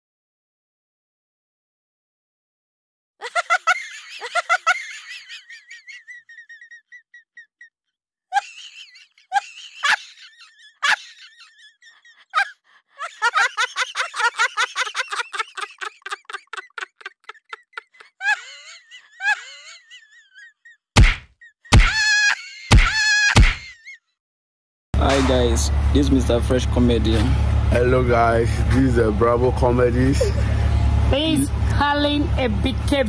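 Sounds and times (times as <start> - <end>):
high-pitched laughter: 3.2 - 7.7, 8.3 - 24.2, 30.0 - 30.8.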